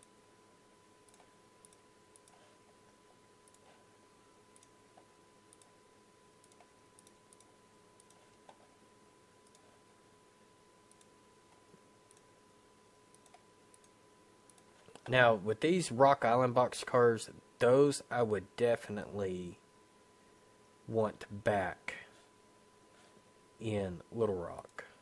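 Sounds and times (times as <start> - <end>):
faint electrical whine: 0.0 - 25.0
computer mouse clicks: 1.0 - 2.6, 3.4 - 3.8, 4.5 - 5.8, 6.4 - 8.7, 9.4 - 9.8, 10.9 - 12.3, 13.1 - 15.1.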